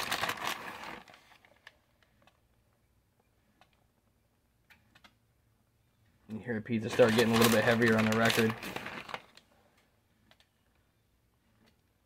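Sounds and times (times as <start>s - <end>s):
cheese rustling: 0.0s - 1.9s, 6.8s - 9.5s.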